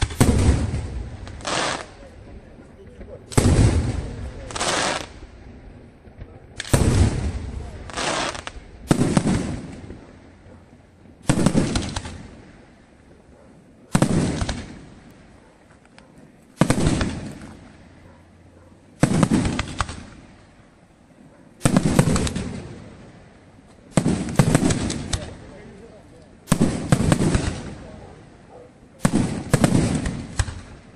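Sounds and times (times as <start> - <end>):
firework shells bursting: 0.0 - 2.0, 6.2 - 10.1, 11.2 - 12.4, 14.0 - 15.1, 19.0 - 20.4, 23.7 - 25.5, 29.0 - 30.9.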